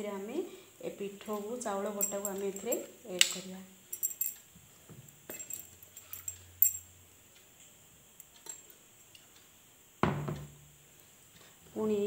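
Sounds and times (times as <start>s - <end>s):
metallic clinks and taps: 2.0s - 2.9s, 3.9s - 6.9s.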